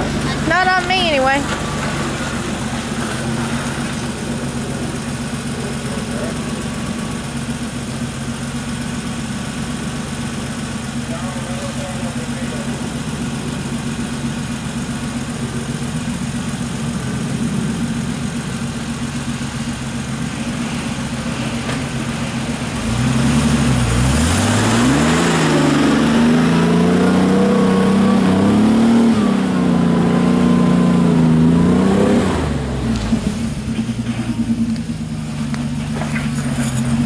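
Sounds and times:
truck engine idling and revving: 0:00.0 - 0:37.0.

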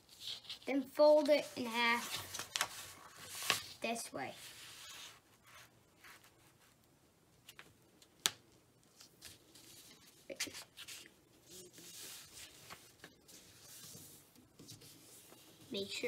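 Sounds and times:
paper rustling and sliding: 0:00.0 - 0:03.8, 0:04.4 - 0:06.5, 0:09.0 - 0:16.0.

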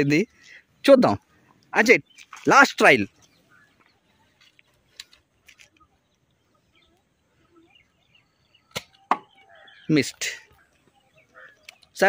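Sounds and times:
faint bird chirps: 0:00.3 - 0:12.0
faint clicks: 0:11.4 - 0:12.0.

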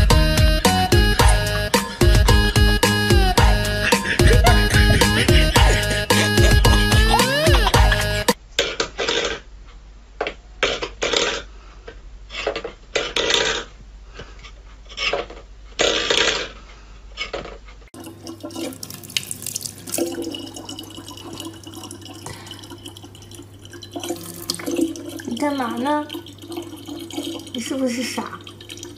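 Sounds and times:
low hum: 0:00.0 - 0:08.4
tap water running: 0:00.6 - 0:08.4, 0:18.0 - 0:28.9.

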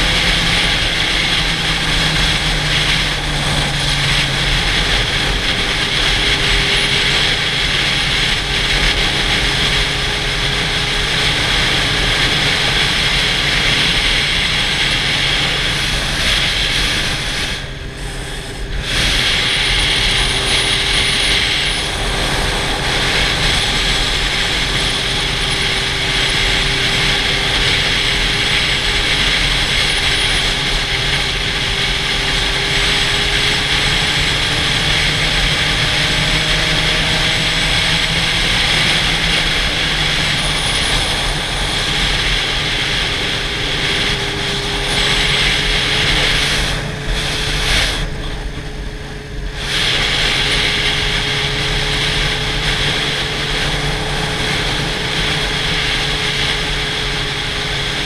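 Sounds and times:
faint motorcycle engine drone: 0:00.0 - 0:58.0
wind rushing over camera: 0:00.0 - 0:58.0.

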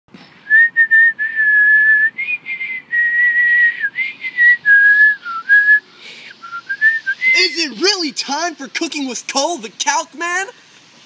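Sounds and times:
person whistling a tune: 0:00.4 - 0:07.5.

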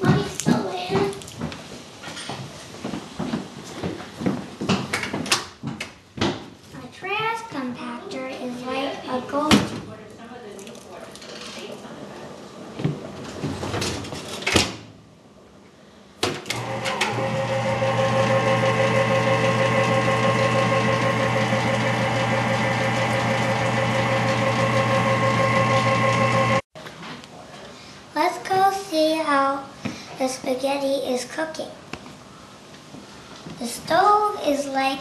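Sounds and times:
electric motor humming: 0:16.6 - 0:26.7.

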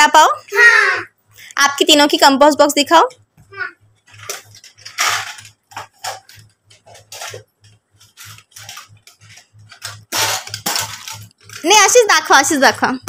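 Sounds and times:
plastic boxes clicking and knocking: 0:04.1 - 0:12.1.

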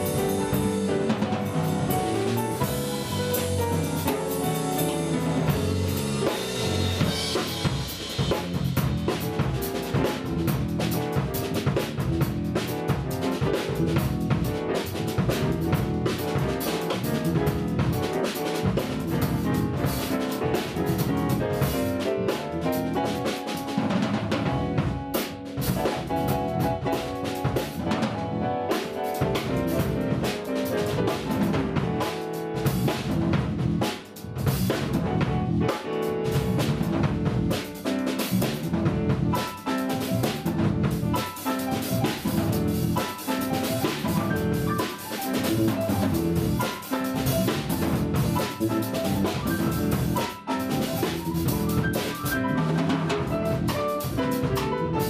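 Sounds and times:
drum and cymbal strikes: 0:00.0 - 0:23.8, 0:37.5 - 0:52.5
jazz piano trio: 0:00.0 - 0:55.0.

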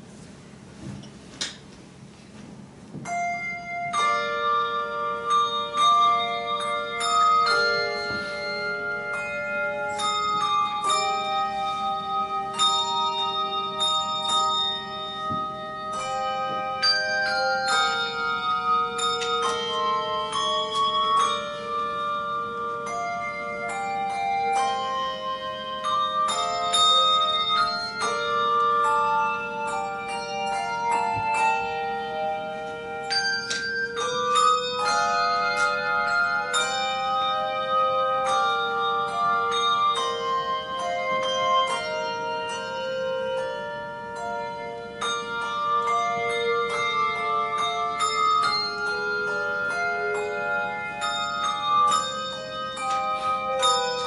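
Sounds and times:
handbell ensemble playing a tune: 0:02.0 - 0:54.0.

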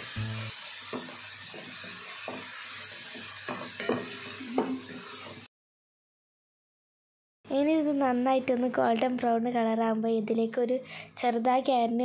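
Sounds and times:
onions sizzling in oil: 0:00.0 - 0:05.5.

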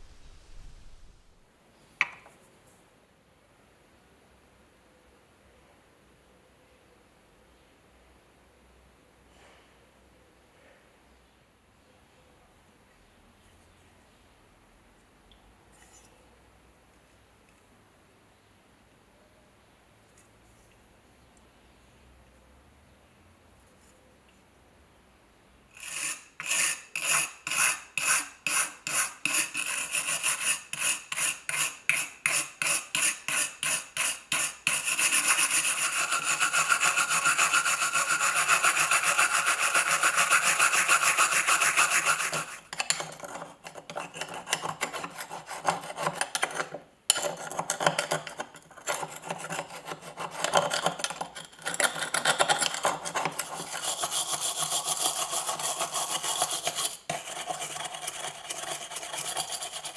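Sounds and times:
brush scrubbing metal buckle: 0:25.8 - 0:59.9.

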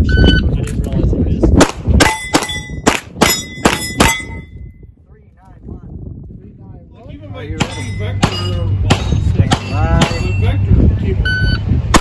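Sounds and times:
steel targets clanging: 0:02.0 - 0:04.5, 0:07.6 - 0:10.6.

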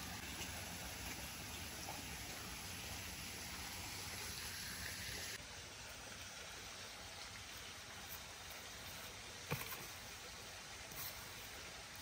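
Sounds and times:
shallow stream running: 0:00.0 - 0:12.0.

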